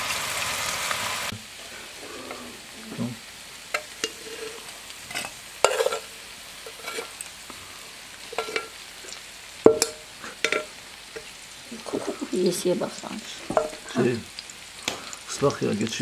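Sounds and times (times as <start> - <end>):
metal spoon scraping frying pan: 3.7 - 7.3, 8.2 - 11.3
spoon clinking metal bowl: 8.3 - 8.7, 9.7 - 10.7.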